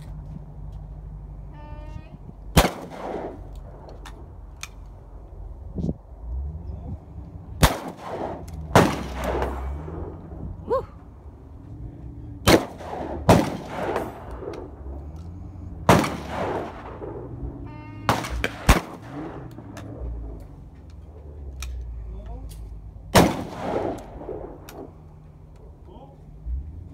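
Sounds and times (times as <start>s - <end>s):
lighter gunshots: 2.5s - 3.9s, 7.6s - 10.1s, 12.4s - 14.9s, 15.8s - 17.4s, 18.0s - 20.4s, 23.1s - 25.0s
shotgun blasts with echo: 2.5s - 3.9s, 7.6s - 10.2s, 12.4s - 14.9s, 15.8s - 20.4s, 23.1s - 25.0s.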